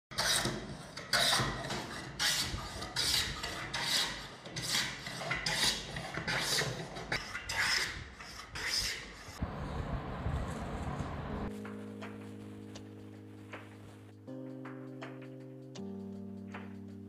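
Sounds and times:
hand plane shaving wood: 0.1 - 9.4.

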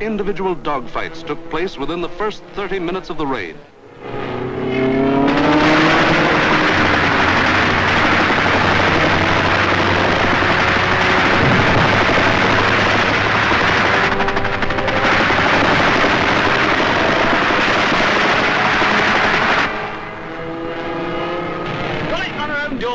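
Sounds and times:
fighter aircraft engines droning: 0.0 - 22.9
machine-gun fire: 6.6 - 19.5.

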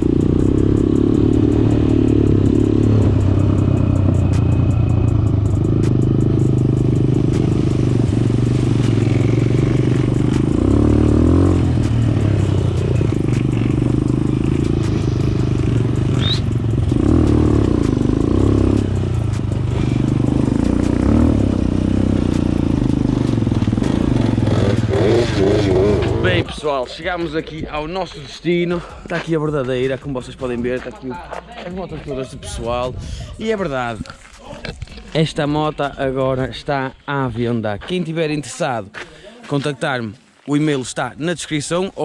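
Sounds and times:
quad bike engine under load: 0.0 - 26.5.

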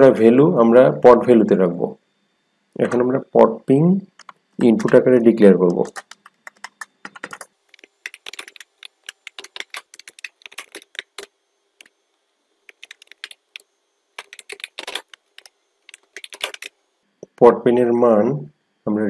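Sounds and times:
keyboard typing: 4.2 - 5.0, 5.7 - 11.9, 12.7 - 16.7.

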